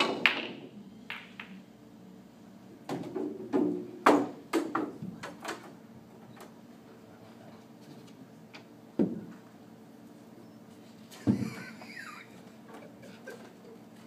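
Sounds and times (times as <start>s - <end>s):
cue ball strike: 0.0s - 1.6s
pool balls clacking in rack: 0.0s - 1.6s
pool balls clicking together: 0.0s - 1.6s.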